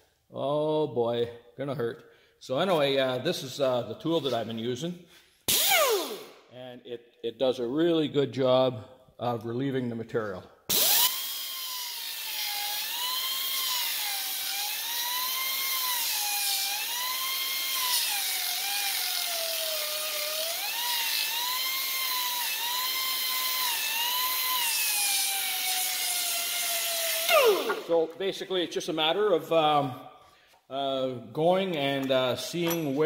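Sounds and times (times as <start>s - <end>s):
belt sander whining on wood: 10.8s - 28.1s.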